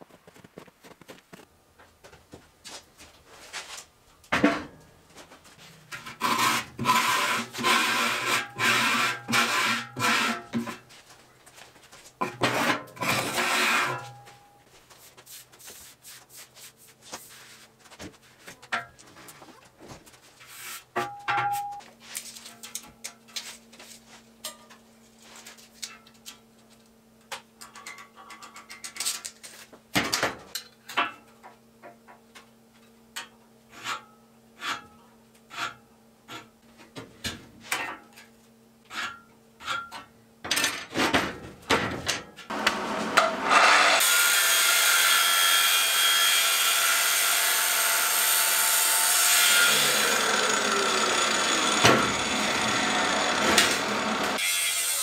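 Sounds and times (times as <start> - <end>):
angle grinder cutting steel: 6.2 - 10.4, 42.5 - 55.0.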